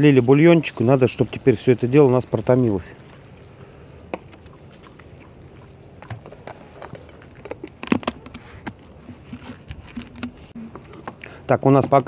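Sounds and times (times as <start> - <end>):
pops and crackles: 6.0 - 12.0.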